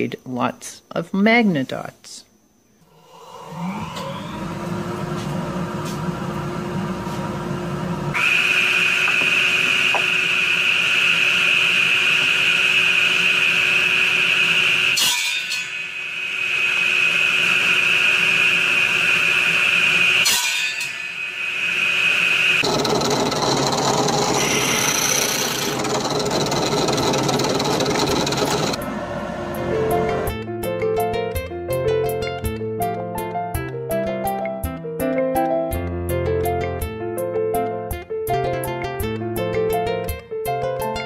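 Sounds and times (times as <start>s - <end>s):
radial arm saw motor whine: 2.8s - 6.6s, 8.0s - 30.3s
saw blade cutting wood: 8.2s - 28.8s.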